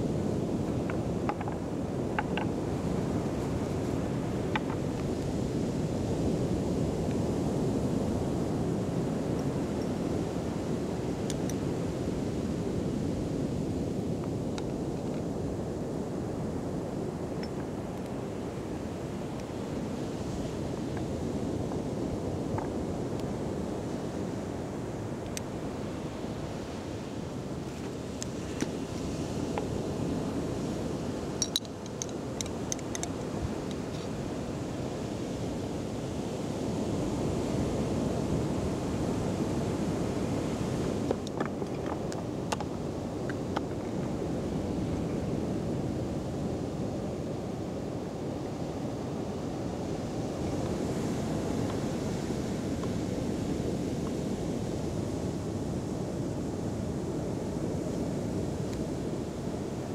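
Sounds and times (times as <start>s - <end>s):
sea surf: 0.0s - 59.9s
wind on microphone: 0.0s - 59.9s
metal spoon clinking glass jar: 31.4s - 32.1s.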